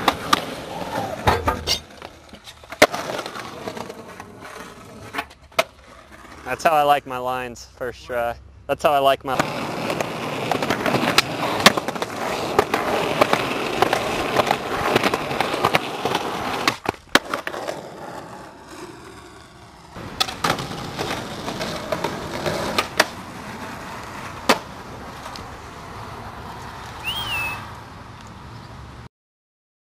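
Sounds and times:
skateboard clacks and knocks: 0.0s - 6.4s, 9.4s - 19.3s, 19.9s - 25.4s
skateboard wheels rolling on concrete: 0.0s - 29.1s.

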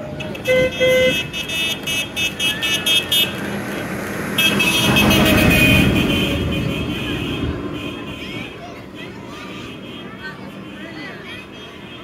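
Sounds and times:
tractor horn tooting: 0.1s - 3.4s, 4.4s - 8.5s.

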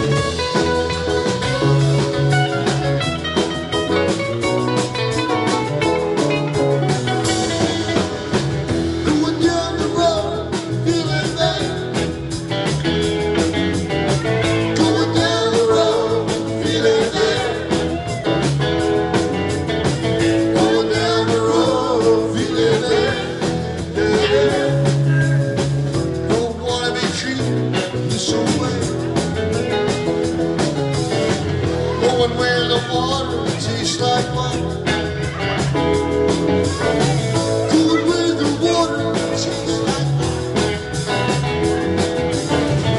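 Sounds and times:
live rock band playing blues: 0.0s - 42.9s
person singing: 5.1s - 12.2s, 14.4s - 18.6s, 20.4s - 25.7s, 26.3s - 29.3s, 31.7s - 35.9s, 36.7s - 40.9s.

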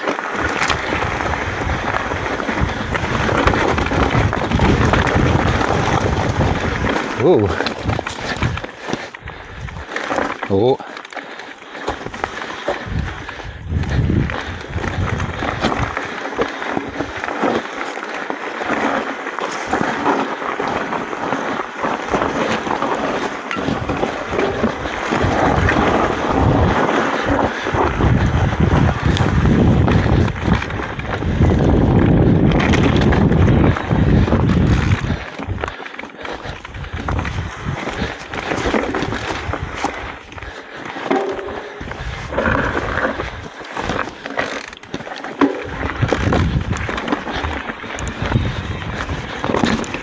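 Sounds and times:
bike knocks and rattles: 0.0s - 10.5s, 11.8s - 50.0s
tyre and wind noise: 0.0s - 50.0s.

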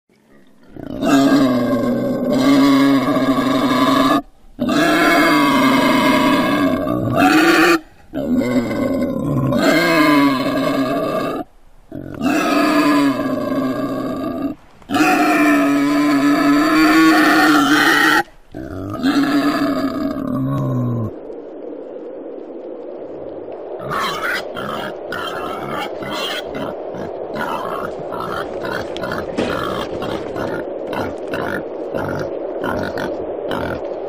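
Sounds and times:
wild boar grunting calls: 23.8s - 33.8s.

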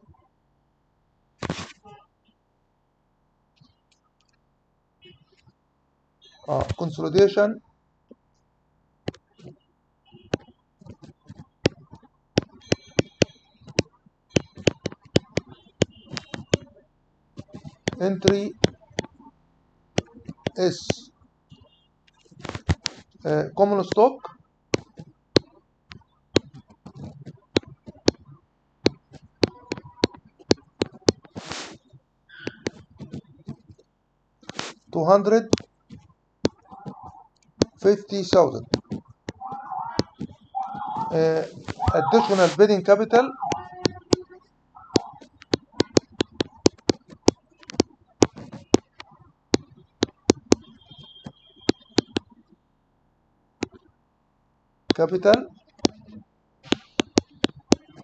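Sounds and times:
stylus tapping on tablet screen: 9.1s - 16.7s, 17.4s - 19.2s, 20.0s - 23.2s, 24.7s - 31.8s, 32.4s - 52.6s, 53.6s - 53.9s, 54.9s - 58.0s.

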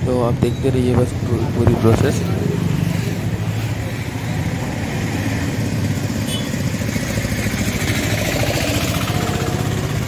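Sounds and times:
motorcycle engine idling: 5.4s - 10.0s.

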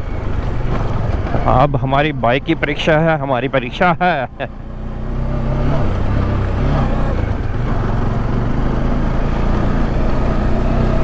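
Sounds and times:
tyres on gravel and wind noise: 0.0s - 11.0s
motorcycle engine running: 4.0s - 11.0s.

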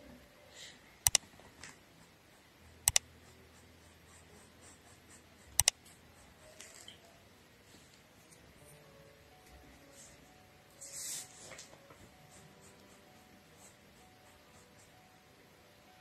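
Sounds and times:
mouse double clicks: 1.0s - 1.2s
paintbrush strokes on fabric: 9.8s - 15.0s.

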